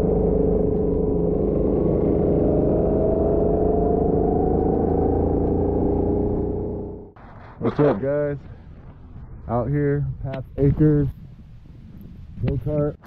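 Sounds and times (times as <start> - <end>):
go-kart engine accelerating: 0.0 - 7.8.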